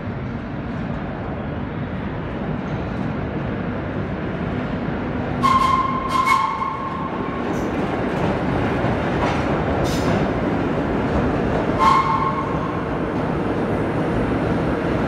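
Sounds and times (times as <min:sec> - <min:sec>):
subway train rumbling: 0:00.0 - 0:15.0
high wheel squeal: 0:05.4 - 0:07.0.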